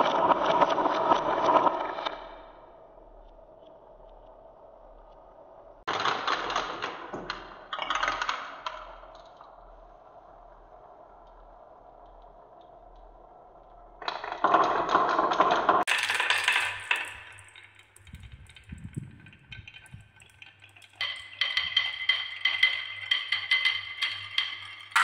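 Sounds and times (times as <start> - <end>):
marbles rolling on wooden track: 13.9 - 25.0
marbles clattering: 14.1 - 25.0
ringing marble clatter: 15.8 - 25.0.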